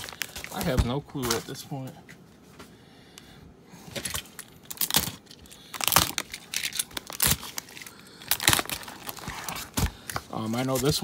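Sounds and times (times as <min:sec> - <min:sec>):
plastic packaging crinkling: 0:00.0 - 0:01.6, 0:03.9 - 0:11.0.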